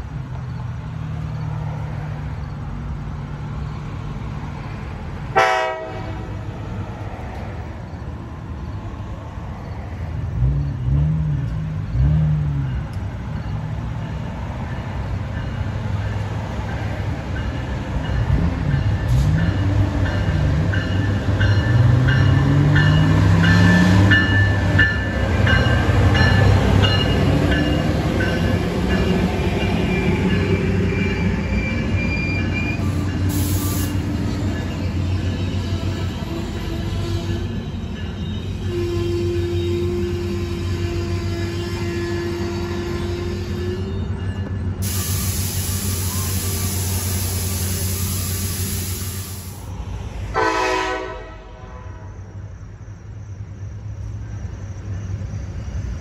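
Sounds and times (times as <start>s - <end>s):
diesel locomotive engine running: 0.0s - 56.0s
train horn blast: 5.3s - 6.4s, 38.6s - 43.6s, 50.3s - 52.2s
train wheel squeal: 12.6s - 49.6s, 51.9s - 56.0s.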